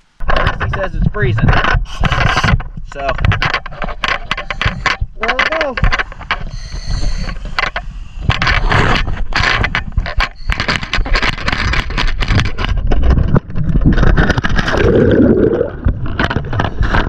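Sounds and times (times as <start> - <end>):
scuba gear knocking and rubbing: 0.2 - 17.0
water splashing: 14.1 - 16.2
fizzing bubbles: 14.7 - 15.9.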